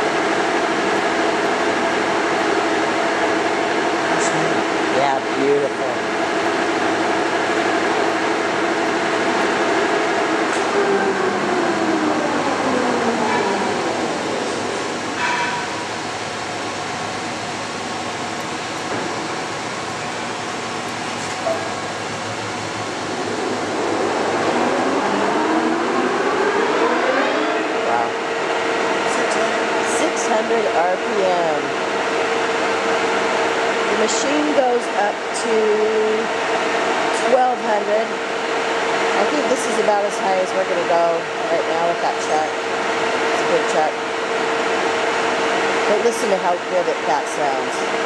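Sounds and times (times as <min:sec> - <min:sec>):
rising whine: 0:00.0 - 0:34.4
lathe gearing humming: 0:00.0 - 0:48.0.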